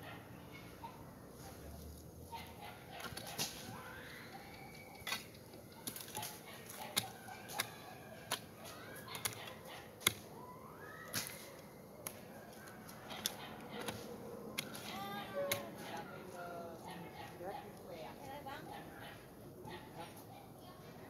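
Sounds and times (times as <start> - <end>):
hoe striking dry soil: 10.0 - 10.2, 13.2 - 15.8.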